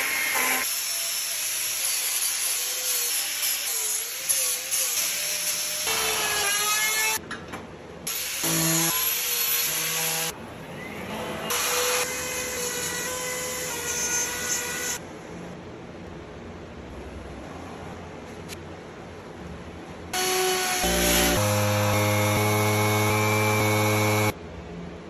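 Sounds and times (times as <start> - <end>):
electric power tool whine: 20.2 - 24.3.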